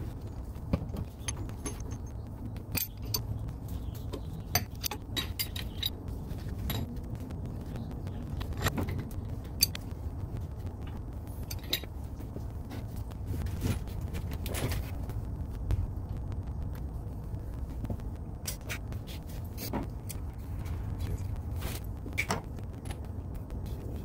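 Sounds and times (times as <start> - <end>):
steady low rumble: 0.0 - 24.0
clicks and clinks of pipe fittings: 0.9 - 6.0, 8.6 - 9.8, 11.5 - 11.9.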